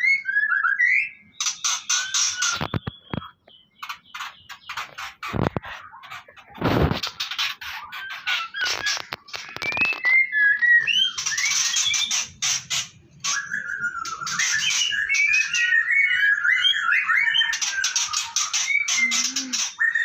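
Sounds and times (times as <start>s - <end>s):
birds chirping and whistling: 0.0s - 20.0s
harsh clicking bird calls: 0.3s - 20.0s.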